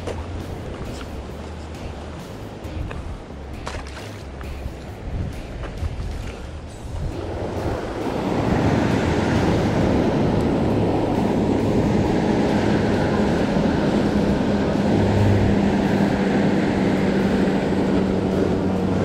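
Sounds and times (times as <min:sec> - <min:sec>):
ocean surf breaking on rocks: 0:00.0 - 0:19.0
wind buffeting microphone: 0:04.3 - 0:19.0.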